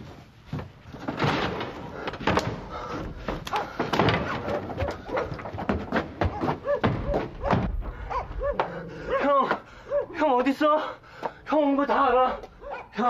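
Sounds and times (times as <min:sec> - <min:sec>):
footsteps on stone and wood: 0:00.0 - 0:09.7, 0:11.1 - 0:12.8
dog barking: 0:04.4 - 0:05.4, 0:06.3 - 0:10.2, 0:12.3 - 0:13.0.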